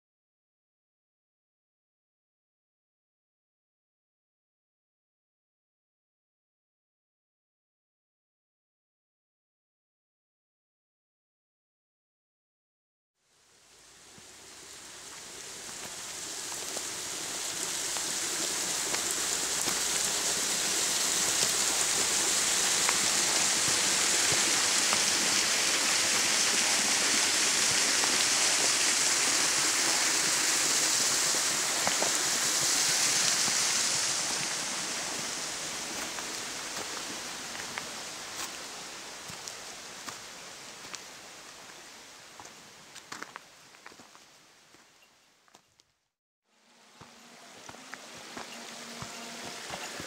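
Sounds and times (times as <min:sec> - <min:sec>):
stream splashing down stones: 0:13.5 - 0:44.8, 0:47.0 - 0:50.0
footsteps on gravel: 0:31.7 - 0:34.6, 0:35.9 - 0:38.6, 0:42.4 - 0:44.8, 0:47.7 - 0:50.0.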